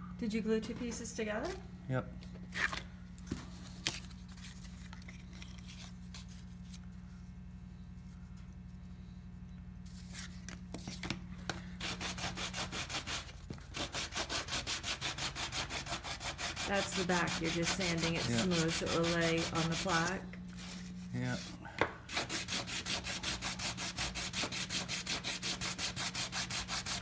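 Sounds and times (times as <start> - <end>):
steady low hum: 0.0 - 27.0
wood sanding strokes: 11.8 - 27.0.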